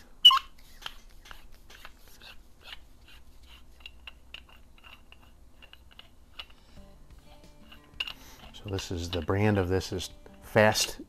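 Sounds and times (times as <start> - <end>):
short high squeaks: 0.2 - 4.0.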